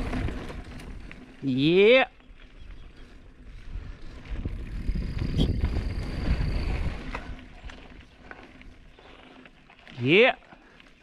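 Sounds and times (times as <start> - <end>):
bike tyres on dirt: 0.0 - 11.0
wind rumble on microphone: 2.3 - 8.8.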